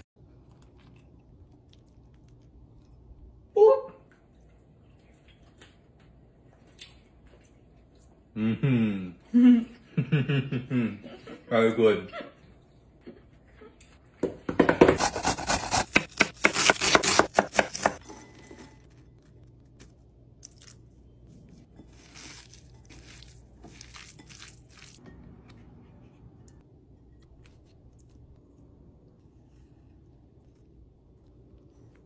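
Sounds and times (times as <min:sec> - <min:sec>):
knife chopping on wooden board: 0:14.5 - 0:18.0
vegetables mixed by hand: 0:15.0 - 0:25.1.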